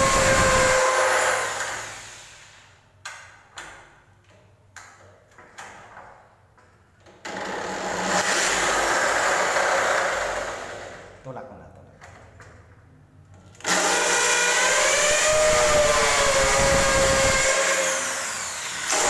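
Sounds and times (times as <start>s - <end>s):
electric drill running: 0.0s - 2.4s, 13.6s - 19.0s.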